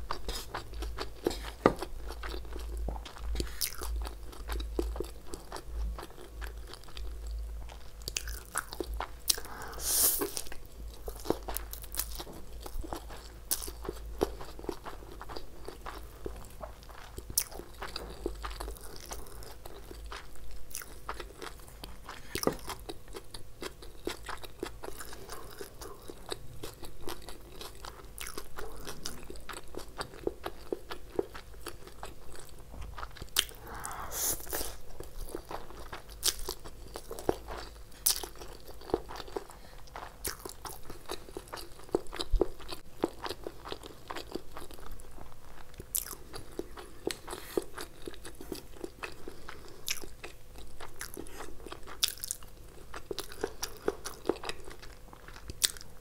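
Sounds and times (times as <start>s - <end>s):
chewing noodles: 0.0s - 56.0s.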